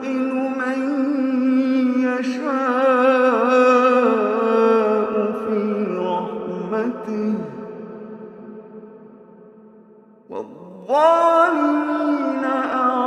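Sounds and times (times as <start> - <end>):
man chanting recitation: 0.0 - 7.6, 10.3 - 13.0.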